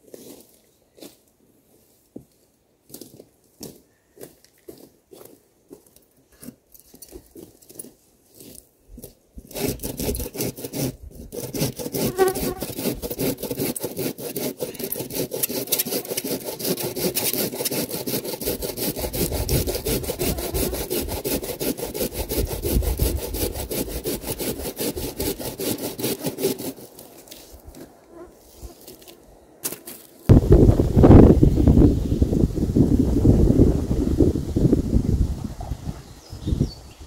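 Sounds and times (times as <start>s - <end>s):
pull saw cutting through log: 9.4s - 27.9s.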